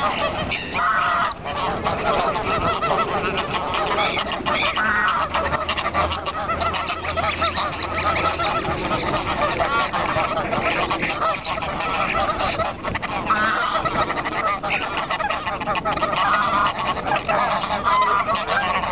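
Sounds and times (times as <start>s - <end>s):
waterfowl calling: 0.0s - 18.9s.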